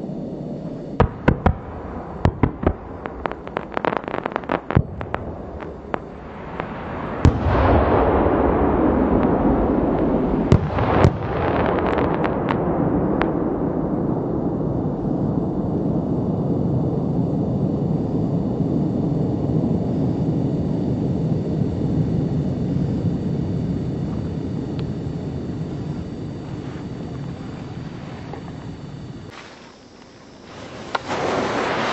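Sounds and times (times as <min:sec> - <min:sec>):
firework bangs: 0:01.0 - 0:13.4, 0:25.7 - 0:31.9
small firework cracks: 0:02.2 - 0:07.8, 0:29.3 - 0:31.9
steady rush of noise: 0:11.7 - 0:31.9.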